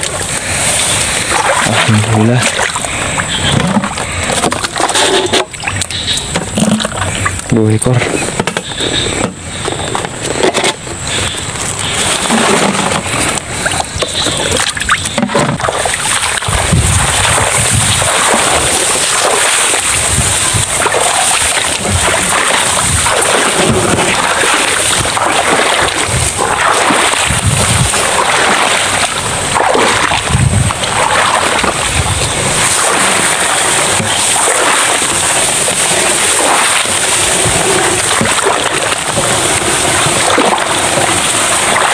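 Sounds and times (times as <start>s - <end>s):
handling noises: 0.0s - 16.2s
footsteps splashing in water: 0.0s - 41.9s
tall grass swishing: 15.8s - 41.9s.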